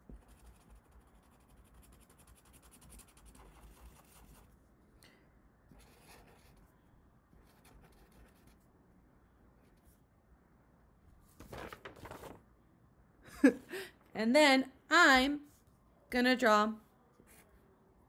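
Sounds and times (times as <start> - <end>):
marker scratching on paper: 0.0 - 4.6, 5.7 - 6.7, 7.3 - 8.6.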